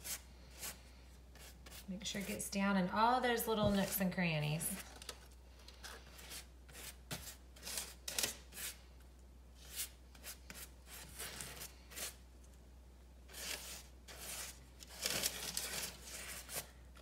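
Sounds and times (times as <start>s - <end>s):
pastry brush stroking bread crust: 0.0s - 2.5s, 13.3s - 16.8s.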